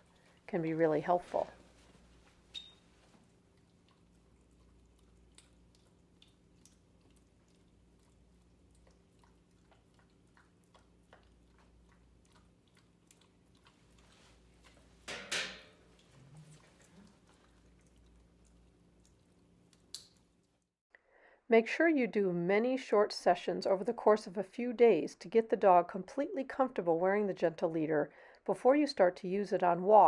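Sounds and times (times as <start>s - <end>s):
low room hum: 0.0s - 30.0s
dog licking spoon: 2.6s - 15.0s, 15.8s - 20.0s.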